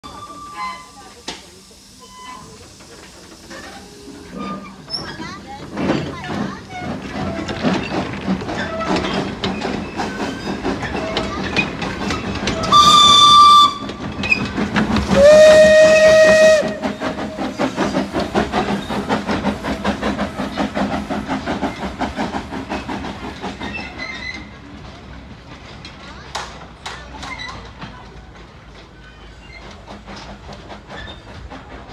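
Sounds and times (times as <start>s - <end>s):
steam exhaust chuffing: 0.2s - 25.8s, 28.3s - 31.9s
steam locomotive whistle: 12.6s - 14.0s, 15.1s - 17.4s.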